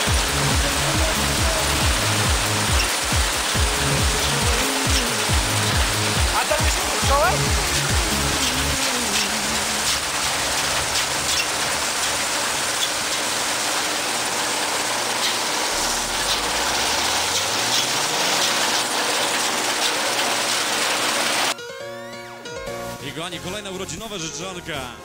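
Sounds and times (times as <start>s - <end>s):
faint engine hum: 0.0s - 12.1s
combine harvester cutting crop: 0.0s - 21.6s.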